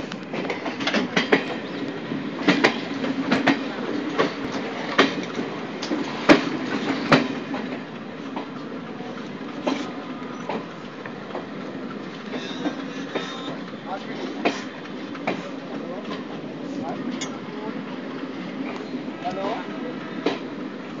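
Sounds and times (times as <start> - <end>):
train rumble: 0.0 - 21.0
train wheels clanking over rail joints: 0.3 - 8.6, 11.3 - 16.4.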